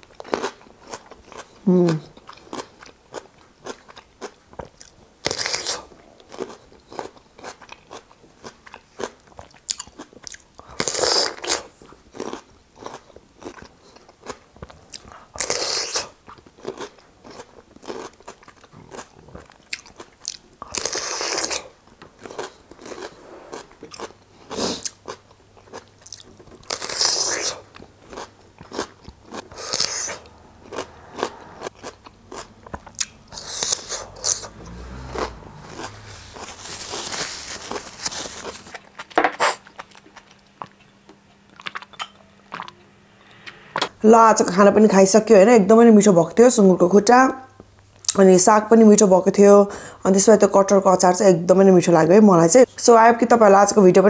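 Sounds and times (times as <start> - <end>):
wet crunching of chewing: 0.0 - 42.8
crisp crunch of biting cucumber: 0.1 - 14.4, 15.0 - 34.5, 35.1 - 40.4.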